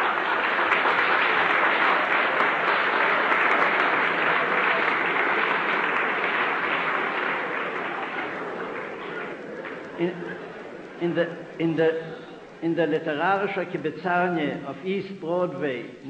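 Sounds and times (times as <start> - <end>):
audience applauding: 0.0 - 12.5.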